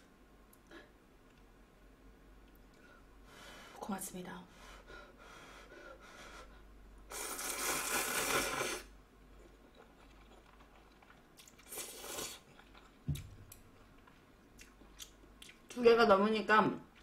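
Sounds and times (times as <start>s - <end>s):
noodles slurping: 7.1s - 13.0s.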